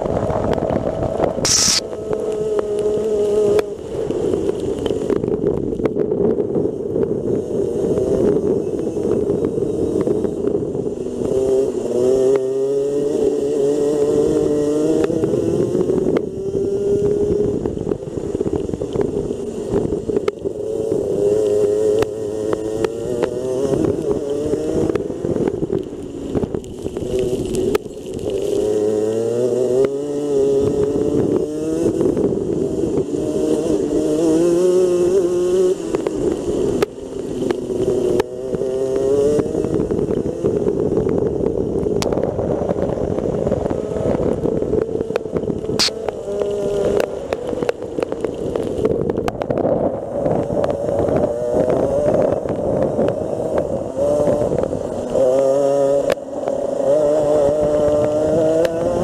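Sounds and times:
two-stroke kart engine revving: 1.3 - 3.7, 43.4 - 47.2, 50.5 - 59.0.

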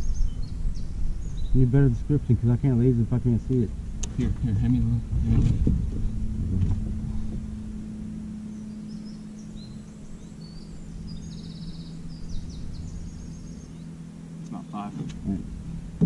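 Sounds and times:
small birds chirping: 0.0 - 15.8
low engine hum: 0.0 - 16.0
bird rapid trill: 8.4 - 14.1.

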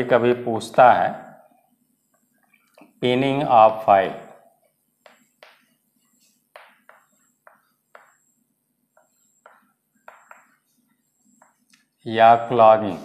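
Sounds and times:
chalk scratching on blackboard: 5.0 - 11.7.

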